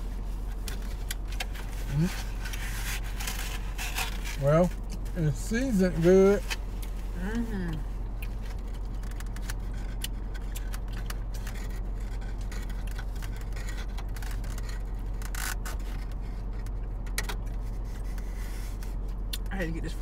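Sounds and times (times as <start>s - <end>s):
car low hum: 0.0s - 20.0s
chewing: 7.7s - 15.2s.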